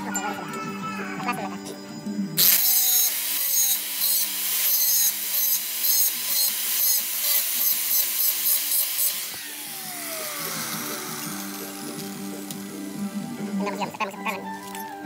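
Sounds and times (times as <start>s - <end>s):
angle grinder grinding steel: 2.4s - 15.0s
motor whining down: 9.0s - 13.8s.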